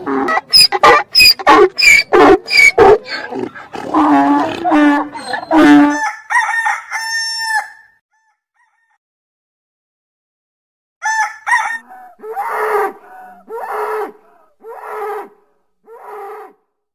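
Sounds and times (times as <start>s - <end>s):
rooster crowing: 5.8s - 8.0s, 11.0s - 15.1s.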